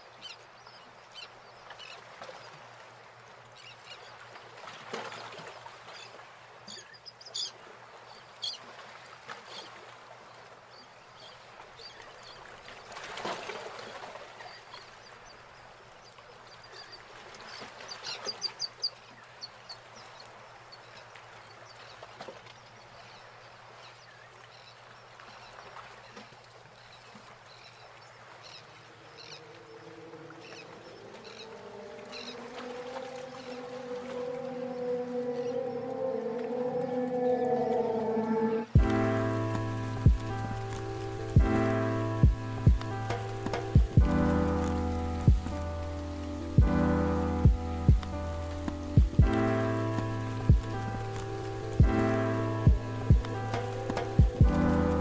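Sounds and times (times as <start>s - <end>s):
birds chirping: 27.6s - 55.0s.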